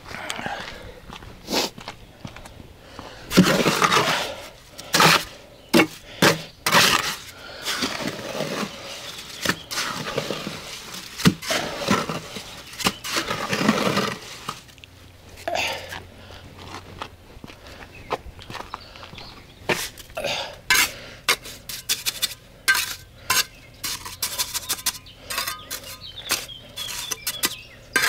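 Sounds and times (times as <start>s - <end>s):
trowel scraping mortar: 3.3s - 14.7s, 19.7s - 28.0s.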